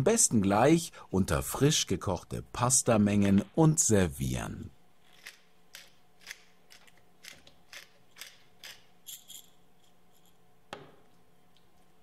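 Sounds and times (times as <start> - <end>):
pepper mill grinding: 5.0 - 10.4.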